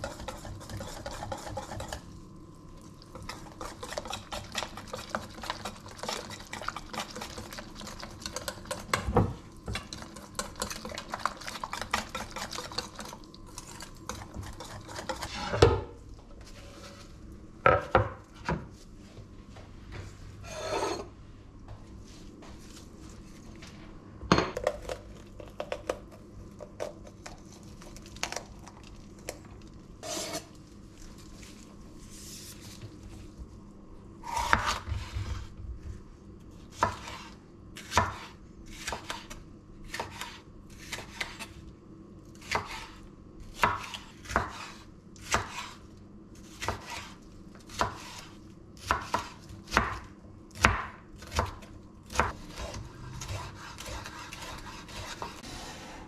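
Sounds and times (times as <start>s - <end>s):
knife chopping on wooden board: 36.8s - 39.3s, 48.8s - 50.0s, 50.6s - 51.6s, 52.2s - 55.7s.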